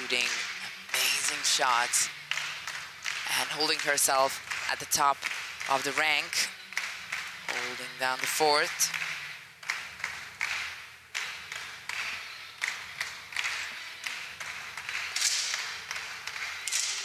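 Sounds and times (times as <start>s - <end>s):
spectators clapping in hall: 0.0s - 17.0s.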